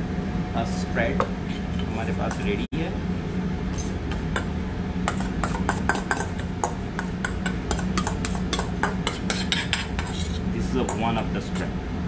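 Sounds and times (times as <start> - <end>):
metal spoon scraping steel bowl: 7.7 - 11.0.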